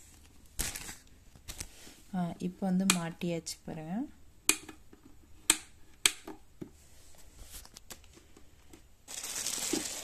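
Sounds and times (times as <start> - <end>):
plastic wrapping crinkling: 0.1 - 1.6, 9.0 - 10.0.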